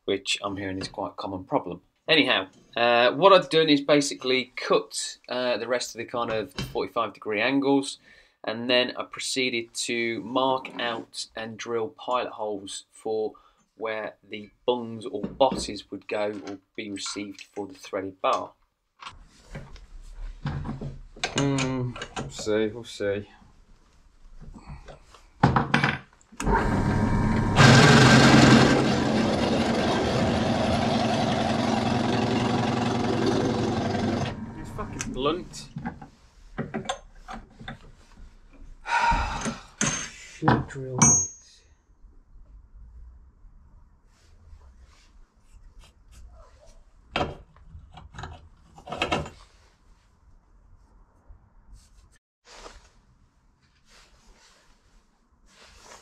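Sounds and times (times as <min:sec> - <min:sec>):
drill press running: 0:26.4 - 0:35.7.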